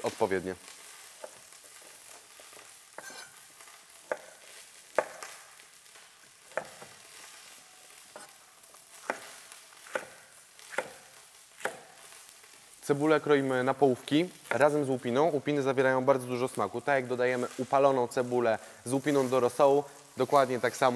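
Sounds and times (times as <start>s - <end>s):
knife chopping on wooden board: 4.1s - 4.4s, 5.0s - 5.3s, 6.5s - 6.9s, 9.0s - 11.0s, 11.6s - 11.9s.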